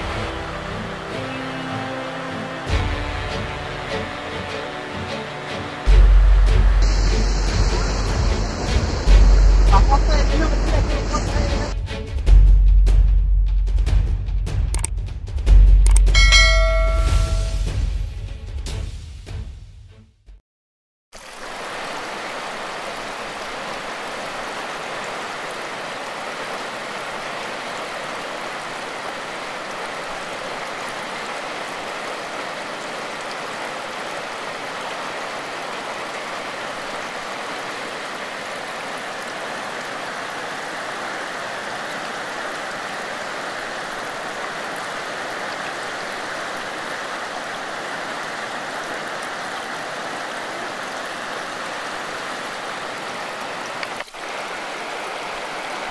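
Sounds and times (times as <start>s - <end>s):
river rushing over rapids: 0.0s - 6.1s, 21.2s - 55.9s.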